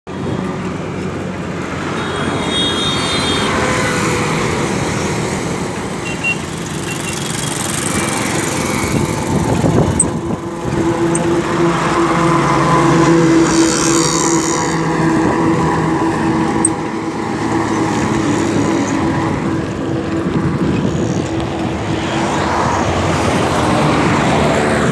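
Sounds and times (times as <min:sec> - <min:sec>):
rushing wind: 0:00.1 - 0:24.9
small engine running: 0:06.3 - 0:21.3.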